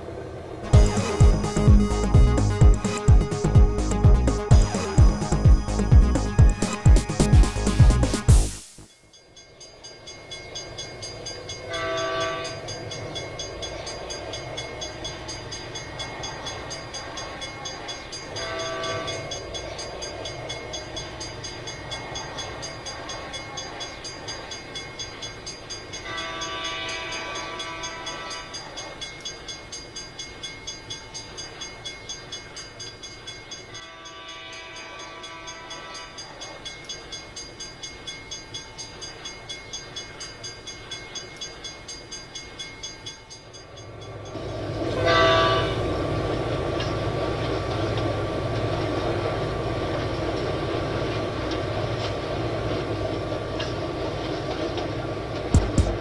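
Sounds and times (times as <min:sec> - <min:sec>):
freight train rumbling clickety-clack: 0:00.0 - 0:08.5, 0:09.7 - 0:56.0
multi-tone train horn: 0:11.7 - 0:12.6, 0:18.4 - 0:19.2, 0:26.1 - 0:28.7, 0:33.8 - 0:36.3, 0:44.9 - 0:46.0.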